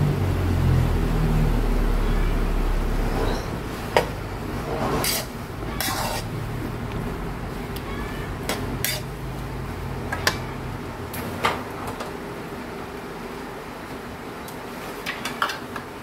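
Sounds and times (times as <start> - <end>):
low steady hum: 0.0 - 16.0
metal tongs scraping a wok: 4.7 - 6.4, 8.4 - 9.2.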